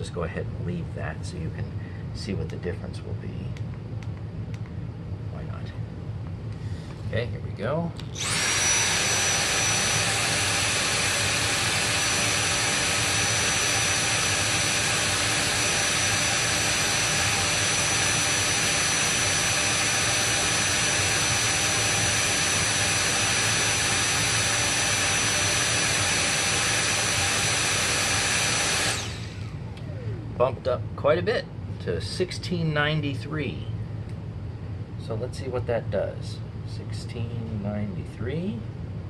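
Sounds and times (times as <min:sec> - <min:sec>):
vacuum cleaner motor whining: 0:08.2 - 0:30.5.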